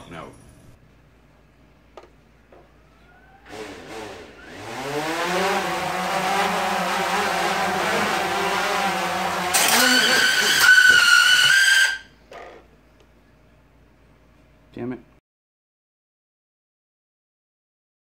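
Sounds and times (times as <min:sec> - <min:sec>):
drone motors and propellers: 0:03.2 - 0:12.0.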